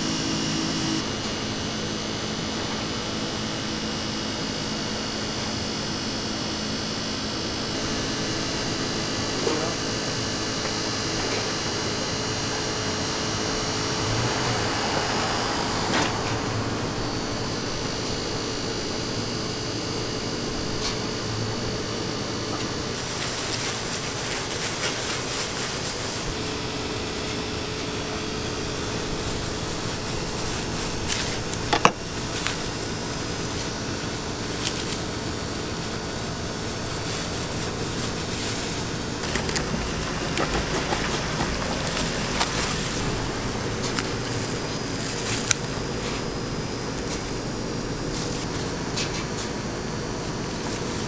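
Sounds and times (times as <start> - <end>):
machine hum and hiss: 0.0 - 51.0
handling noises: 34.4 - 47.5.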